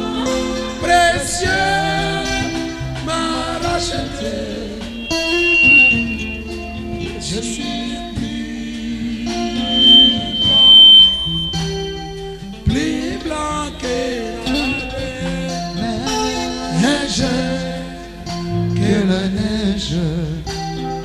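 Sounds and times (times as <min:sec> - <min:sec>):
worship singing with instruments: 0:00.0 - 0:21.0
high steady tone: 0:04.5 - 0:12.6.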